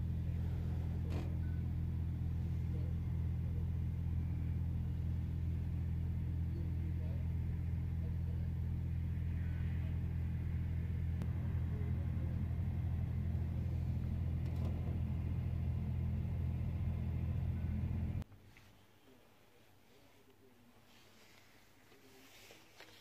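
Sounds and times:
diesel engine idling: 0.0s - 18.2s.

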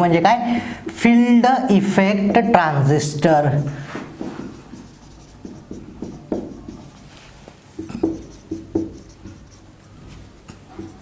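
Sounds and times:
marker writing on whiteboard: 4.0s - 11.0s
marker squeaks: 10.5s - 11.0s.

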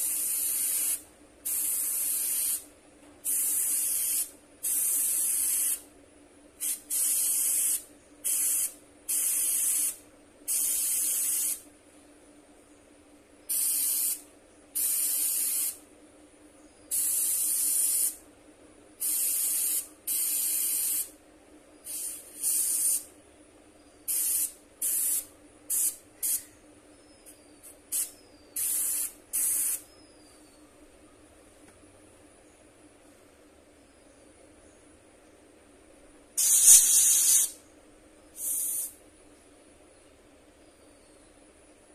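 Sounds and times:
airbrush spraying hiss: 0.0s - 5.9s, 6.6s - 11.6s, 13.5s - 14.2s, 14.8s - 15.8s, 16.9s - 18.2s, 19.0s - 21.1s, 21.8s - 23.1s, 24.0s - 26.5s, 27.6s - 29.9s, 36.4s - 37.6s, 38.4s - 39.0s
low steady hum: 5.8s - 7.0s, 11.6s - 14.8s, 15.8s - 17.6s, 18.2s - 20.4s, 21.1s - 36.4s, 37.6s - 41.9s.

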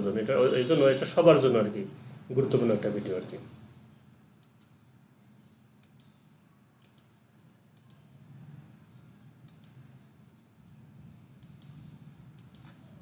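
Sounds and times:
low steady hum: 0.0s - 13.0s
computer mouse clicks: 4.4s - 4.8s, 5.8s - 6.2s, 6.8s - 8.1s, 9.4s - 9.9s, 11.4s - 12.9s.

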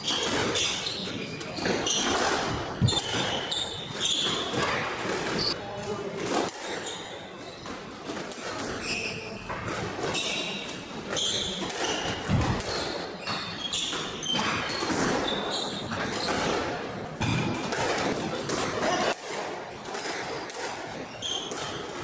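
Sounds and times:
shoes squeaking on hardwood: 0.1s - 5.6s
squash ball smacking walls: 1.4s - 5.6s, 9.6s - 22.0s.

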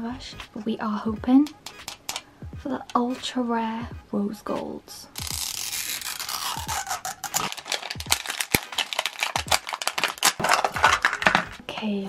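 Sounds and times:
plastic film ripping peel: 5.2s - 11.8s
plastic crinkling: 5.2s - 12.0s.

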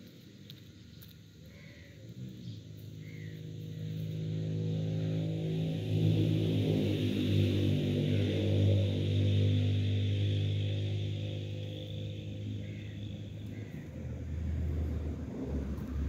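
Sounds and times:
droning background music: 3.0s - 15.4s.

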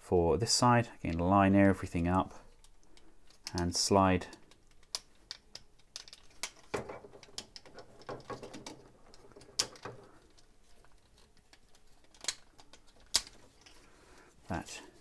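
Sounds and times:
plastic parts clicking and tapping: 2.4s - 13.8s.

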